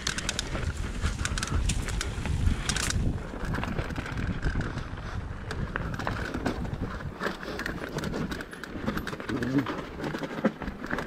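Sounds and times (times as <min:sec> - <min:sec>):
bike clicks and rattles: 0:00.0 - 0:11.0
bike tyres rumbling on dirt: 0:00.0 - 0:11.0.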